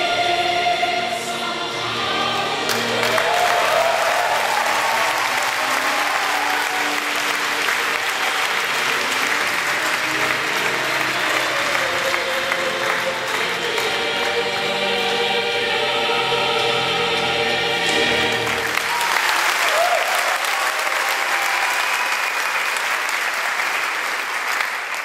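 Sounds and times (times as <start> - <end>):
choir singing: 0.0 - 19.0
audience applauding: 2.4 - 14.4, 18.2 - 25.0.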